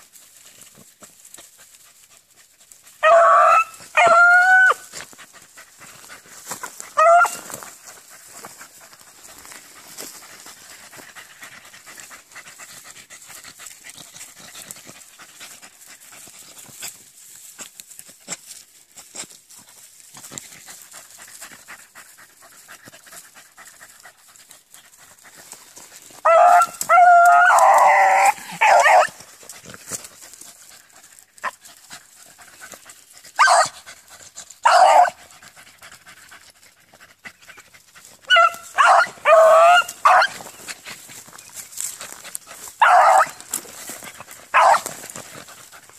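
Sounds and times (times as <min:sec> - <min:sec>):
rustle of brush: 0:00.0 - 0:45.9
beagles baying: 0:03.0 - 0:05.0, 0:06.9 - 0:07.7, 0:26.2 - 0:29.2, 0:38.2 - 0:45.2.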